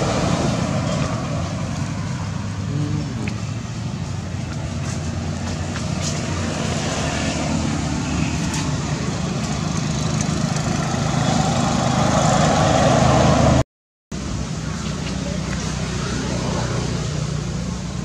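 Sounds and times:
vehicle engine running: 0.0 - 13.6.

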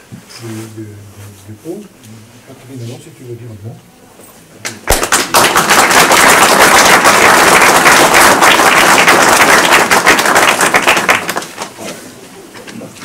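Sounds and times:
crowd clapping: 4.6 - 11.8.

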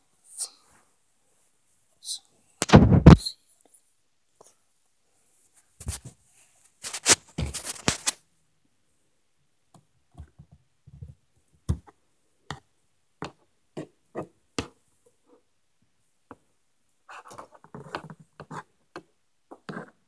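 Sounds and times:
rustling: 5.3 - 8.2.

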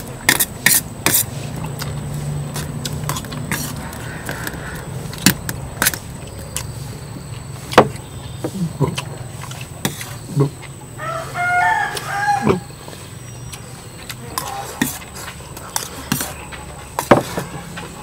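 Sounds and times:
rooster crowing: 3.7 - 5.0, 11.0 - 12.9.

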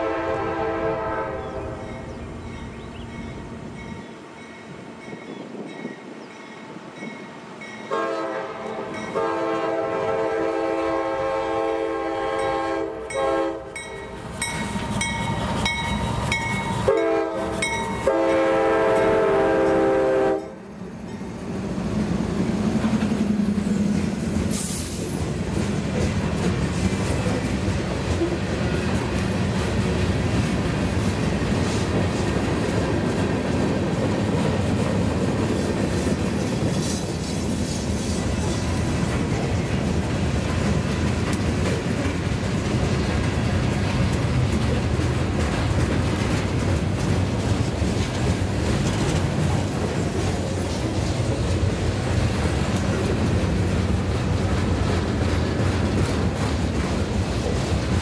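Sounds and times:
train air horn blasts: 0.0 - 2.0, 7.9 - 13.9, 16.7 - 20.6
diesel locomotive engine drone: 0.0 - 58.0
train wheels clacking on rails: 12.2 - 58.0.

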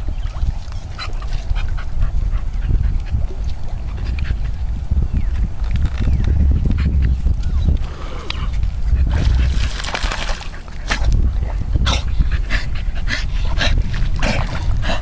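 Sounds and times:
steady low rumble: 0.0 - 15.0
dog splashing in shallow water: 9.0 - 11.2.

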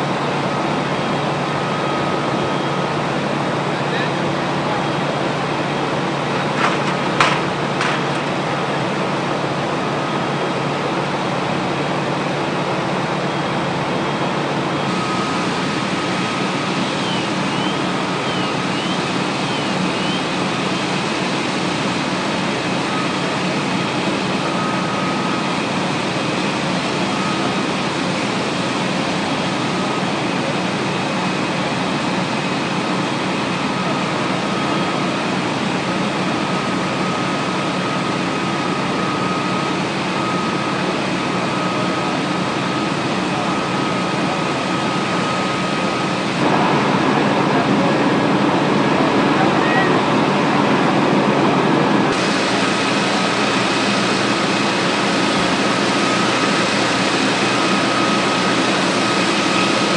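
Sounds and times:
fire engine running: 0.0 - 59.9
sharp knocks: 6.6 - 8.2.

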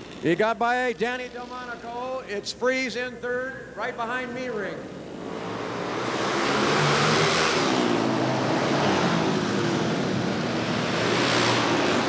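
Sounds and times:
racing motorcycle engines: 4.8 - 12.0.

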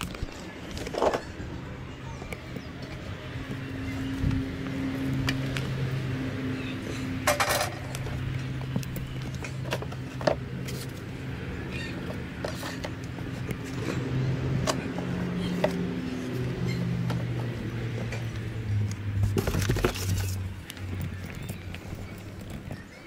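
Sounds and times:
cardboard handling clicks and knocks: 19.2 - 20.4.

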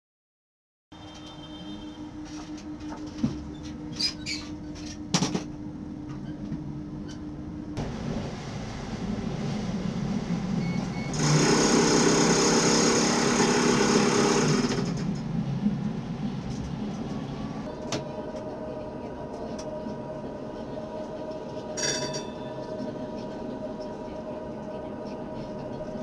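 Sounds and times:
tram running on track: 7.8 - 26.0
tram warning bell trilling: 21.7 - 23.2.

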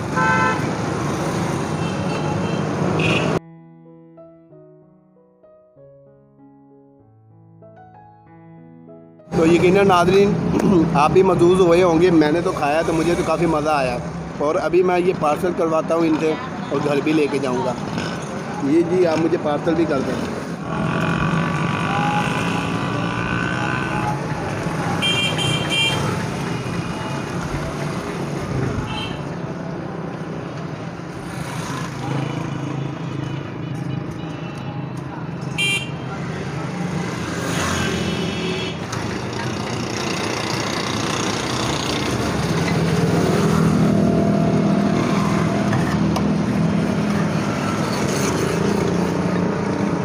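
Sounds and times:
street traffic: 0.0 - 3.7, 9.2 - 50.0.

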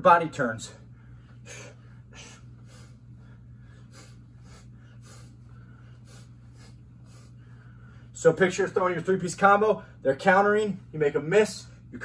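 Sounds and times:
steady low hum: 0.0 - 12.0
sharp breaths through nose: 3.7 - 8.1.

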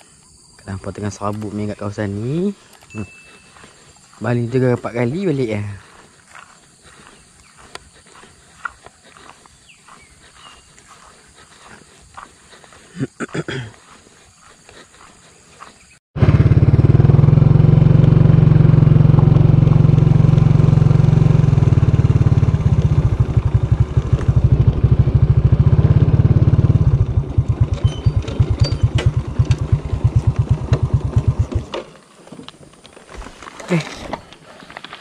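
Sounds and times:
motorcycle engine running: 16.2 - 31.9.

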